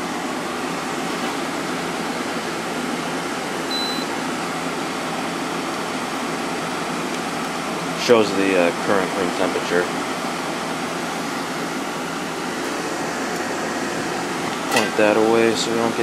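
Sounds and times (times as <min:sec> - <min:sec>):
air conditioner running: 0:00.0 - 0:16.0
faint high beep: 0:03.7 - 0:04.1.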